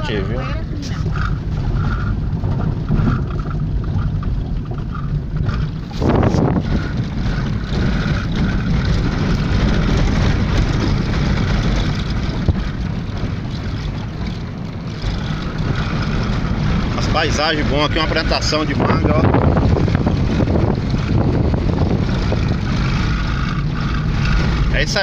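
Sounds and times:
engine and tyres rumbling on dirt: 0:00.0 - 0:25.0.

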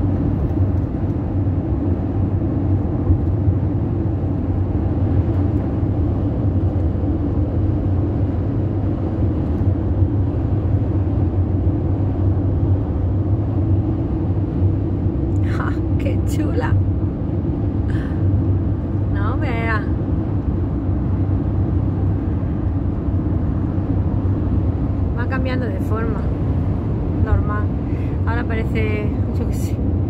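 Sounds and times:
low drone of engine and tyres: 0:00.0 - 0:30.0.

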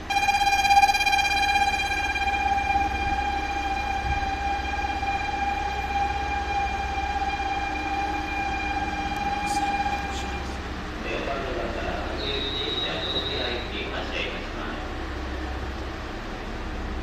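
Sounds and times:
platform departure buzzer: 0:00.0 - 0:10.6.

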